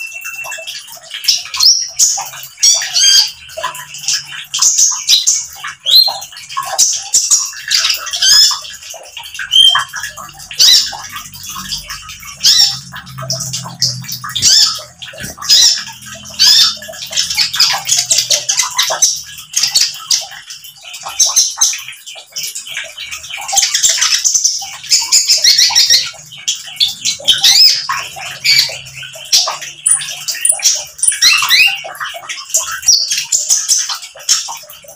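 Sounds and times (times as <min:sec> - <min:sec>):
sunbird singing: 0:09.5 - 0:19.2.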